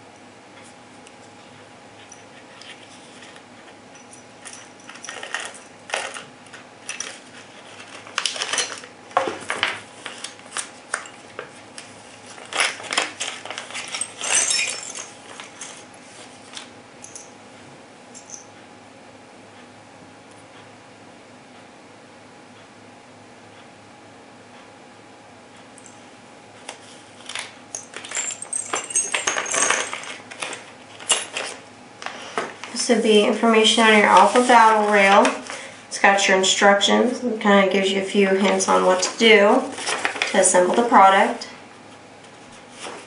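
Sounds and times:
metal screws clinking: 0:04.0 - 0:06.2, 0:12.5 - 0:15.8, 0:27.7 - 0:31.6.

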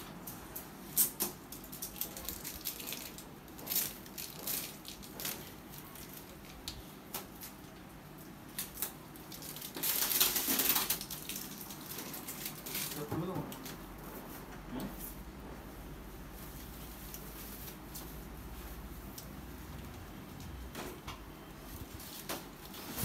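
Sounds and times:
plastic film crinkling: 0:00.4 - 0:13.8.

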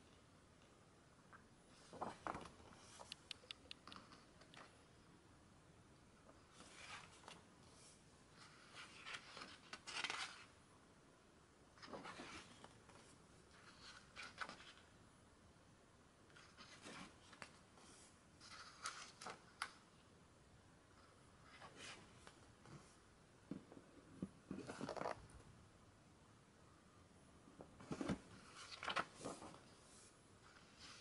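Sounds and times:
book pages turning: 0:01.8 - 0:03.2, 0:08.4 - 0:10.5, 0:27.8 - 0:31.0.

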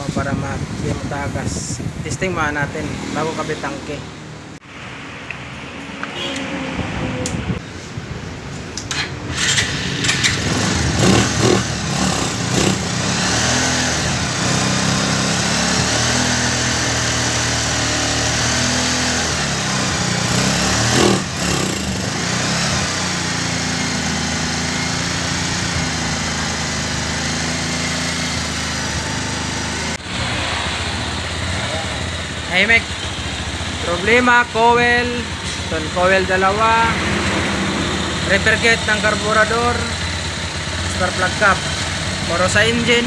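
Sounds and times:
motorcycle engine revving and idling: 0:08.9 - 0:43.0.

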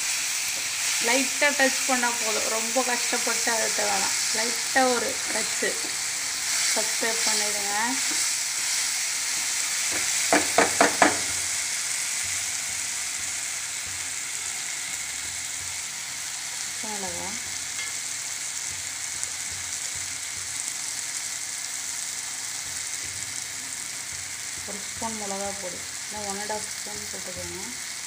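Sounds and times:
masala sizzling in a pan: 0:00.0 - 0:28.0
spatula tapping a pan: 0:09.9 - 0:11.4.

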